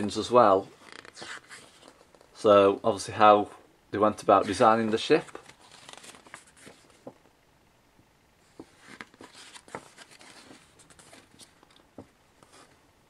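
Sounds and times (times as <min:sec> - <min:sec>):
magazine pages rustling: 0:00.8 - 0:02.4, 0:04.3 - 0:07.2, 0:08.5 - 0:12.7.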